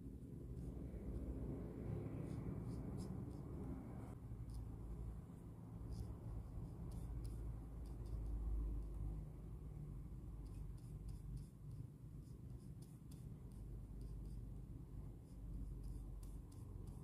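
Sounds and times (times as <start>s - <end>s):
paintbrush strokes on paper: 0.0s - 9.2s, 10.3s - 17.0s
low background rumble: 0.0s - 17.0s.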